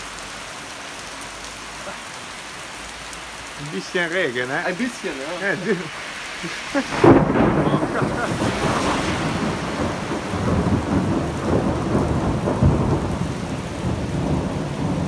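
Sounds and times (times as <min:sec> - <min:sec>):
heavy rain on pavement: 0:00.0 - 0:15.0
thunder rumbling: 0:06.7 - 0:15.0.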